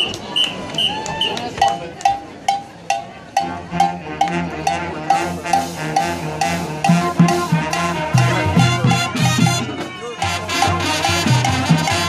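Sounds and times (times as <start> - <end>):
steady percussion tap: 1.5 - 3.0
drums: 1.6 - 12.0
marching band brass: 3.4 - 12.0.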